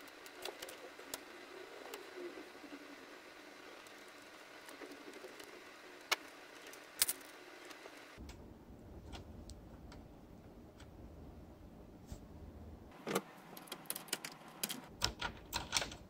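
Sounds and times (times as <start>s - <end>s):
low hum: 7.4s - 13.6s
plastic toy parts clicking: 13.6s - 16.0s.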